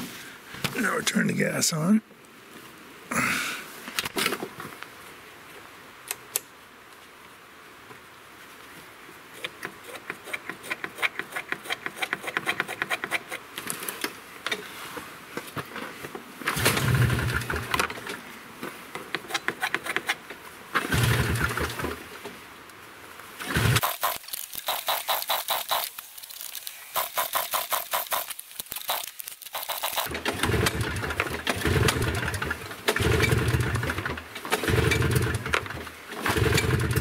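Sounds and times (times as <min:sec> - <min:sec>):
recoil starter pulls: 0:16.5 - 0:18.2, 0:20.8 - 0:22.0, 0:23.4 - 0:26.0, 0:26.6 - 0:37.0
rapid light clicking: 0:23.8 - 0:30.1.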